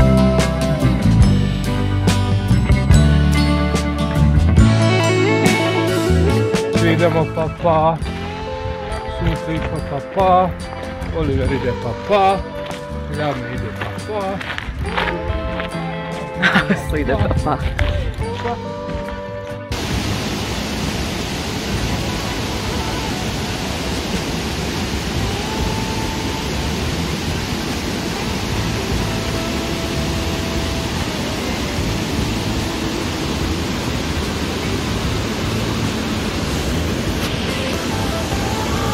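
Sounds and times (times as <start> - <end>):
stream cascading over rocks: 19.7 - 38.9.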